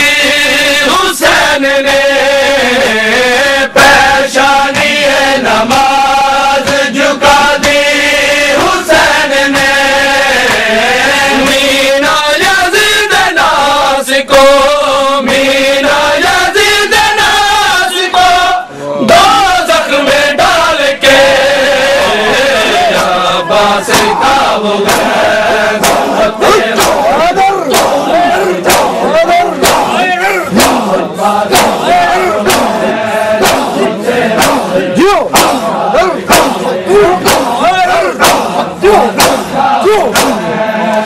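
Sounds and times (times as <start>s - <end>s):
men chanting lament: 0.0s - 41.0s
chest-beating slaps: 3.8s - 11.8s, 22.0s - 41.0s.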